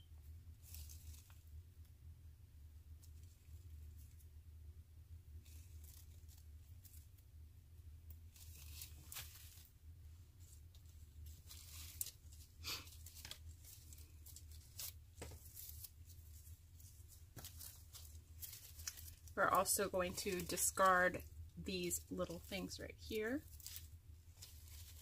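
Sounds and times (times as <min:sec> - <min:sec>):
low steady hum: 0:00.0 - 0:25.0
plastic stems rustling: 0:00.6 - 0:01.4, 0:05.4 - 0:07.3, 0:08.2 - 0:25.0
tags tearing and crinkling: 0:00.6 - 0:01.4, 0:08.3 - 0:09.7, 0:11.2 - 0:25.0.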